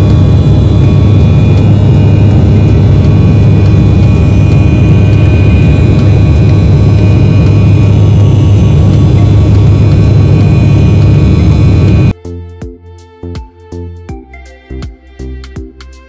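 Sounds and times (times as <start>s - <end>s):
airliner cabin engine roar: 0.0s - 12.2s.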